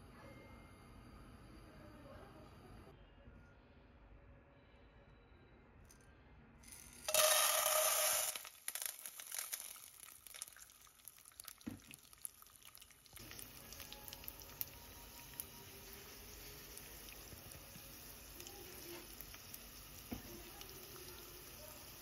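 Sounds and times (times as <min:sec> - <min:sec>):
kernels clicking into pan: 0:06.7 - 0:17.2
popcorn kernels pouring into pan: 0:06.7 - 0:22.0.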